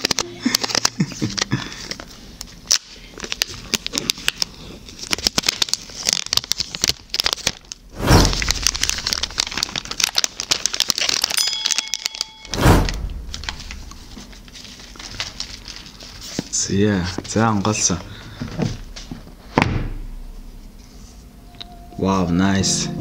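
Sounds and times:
seal strip ripping: 2.6s - 11.4s.

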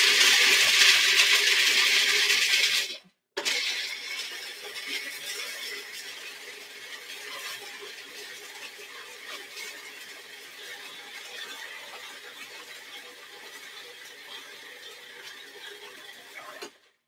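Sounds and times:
food processor chopping: 0.0s - 16.7s.

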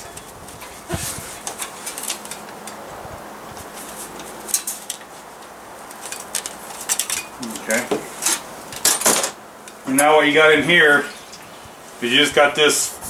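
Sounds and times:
metal wick holder clicking and rattling: 5.8s - 9.8s.

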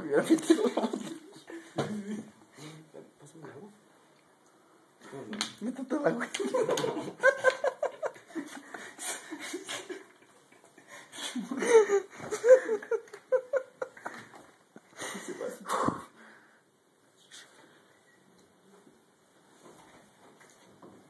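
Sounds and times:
young men laughing hard: 0.3s - 2.3s, 6.4s - 15.6s.

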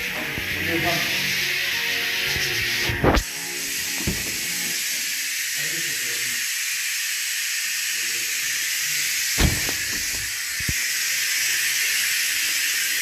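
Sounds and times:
workshop noise hiss: 0.0s - 13.0s
car door shutting: 4.0s - 4.5s, 9.4s - 10.4s.

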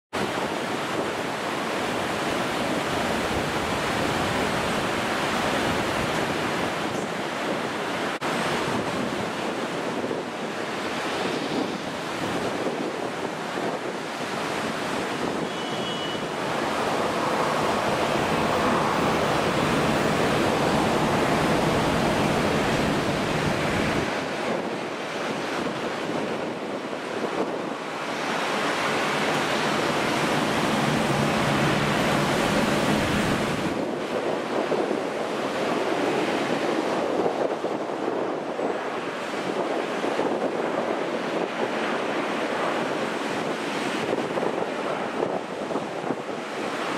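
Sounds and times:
wind on microphone: 0.2s - 46.9s
jet engines roaring: 14.2s - 24.7s, 27.9s - 33.8s.

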